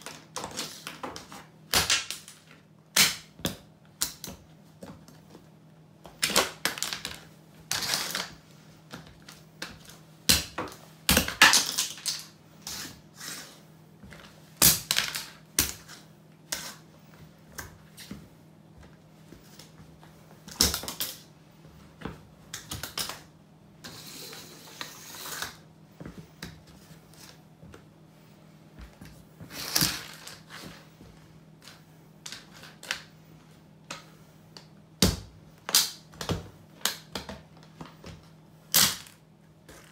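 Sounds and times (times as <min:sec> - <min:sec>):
plastic toy cracking under boots: 0:38.7 - 0:39.2.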